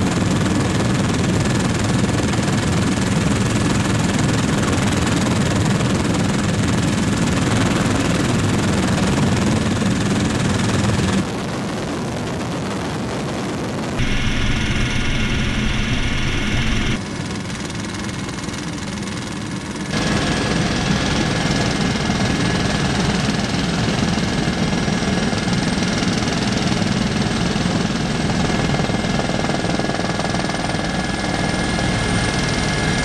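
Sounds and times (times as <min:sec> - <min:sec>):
helicopter engine and rotor noise: 0:00.0 - 0:33.0
high steady whine: 0:14.0 - 0:17.0.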